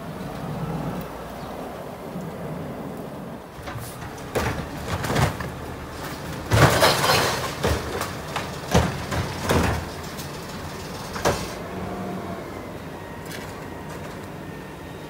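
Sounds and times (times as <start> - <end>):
truck engine running: 3.6 - 15.0
metallic bangs and clanks: 3.7 - 11.6.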